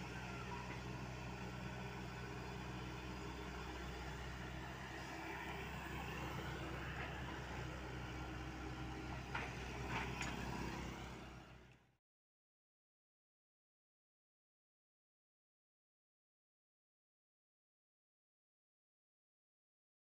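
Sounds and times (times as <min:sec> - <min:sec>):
excavator diesel engine running: 0:00.0 - 0:11.9.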